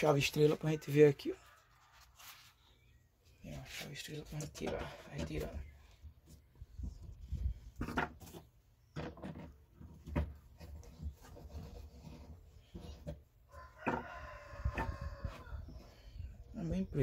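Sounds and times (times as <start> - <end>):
rooster crowing: 13.5 - 15.7.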